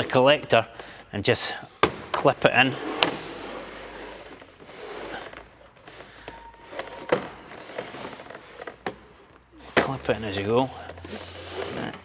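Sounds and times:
pipe rubbing and scraping: 0:10.3 - 0:12.0.

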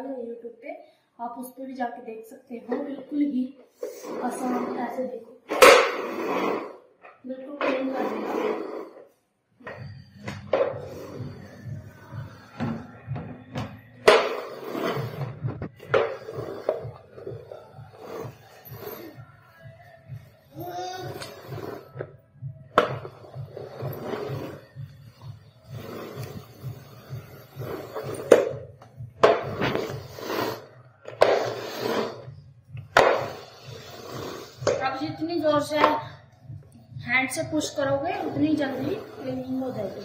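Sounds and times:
floor sweeper rolling over tiles: 0:03.7 - 0:19.2, 0:21.1 - 0:22.2, 0:22.8 - 0:32.3, 0:33.0 - 0:35.9, 0:37.6 - 0:40.0.

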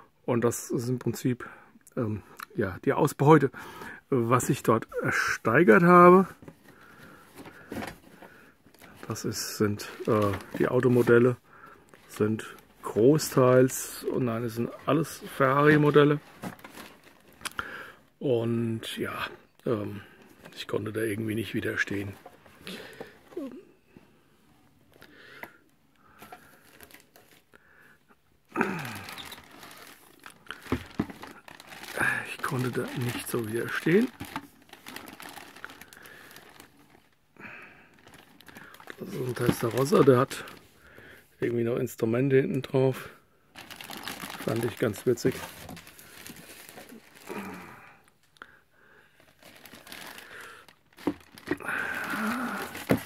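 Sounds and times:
plastic bag crinkling: 0:06.7 - 0:17.7, 0:26.2 - 0:27.5, 0:28.6 - 0:40.6, 0:43.5 - 0:48.2, 0:49.2 - 0:53.0.

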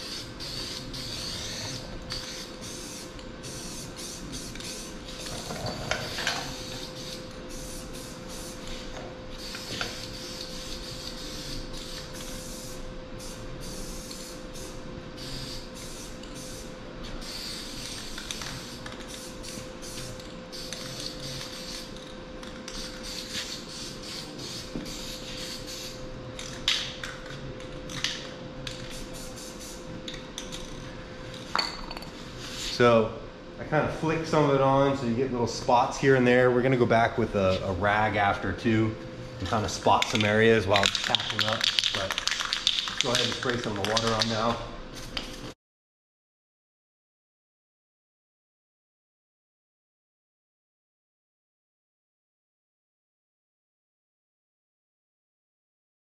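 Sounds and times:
spray paint cans hissing: 0:00.0 - 0:27.2, 0:27.9 - 0:29.8, 0:39.5 - 0:45.5
steady hum: 0:00.0 - 0:45.6.

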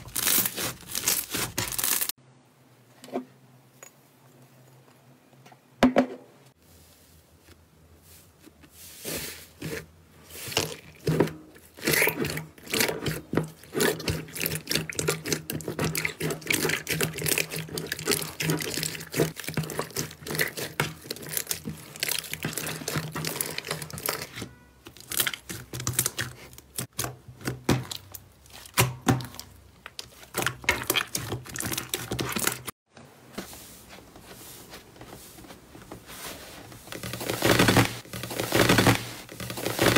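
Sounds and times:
hands squishing slime: 0:11.8 - 0:24.4.

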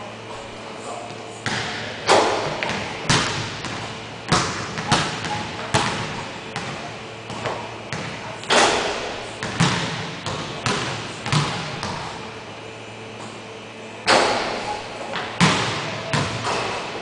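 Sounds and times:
basketball bouncing on hardwood floor: 0:01.4 - 0:12.1
ball hitting rim: 0:01.4 - 0:12.2, 0:14.0 - 0:17.0.

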